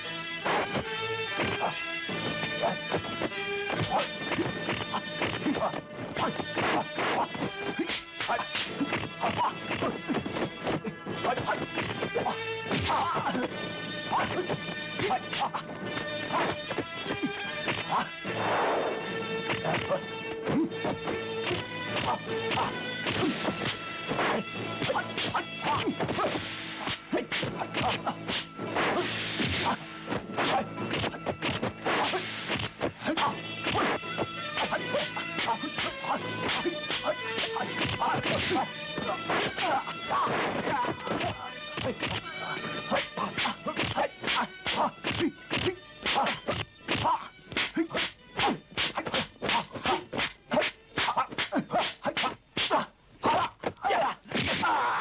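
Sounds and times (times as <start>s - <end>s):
background music: 0.0s - 55.0s
punch sound effects: 26.9s - 32.9s
punch and kick impact effects: 27.4s - 29.7s.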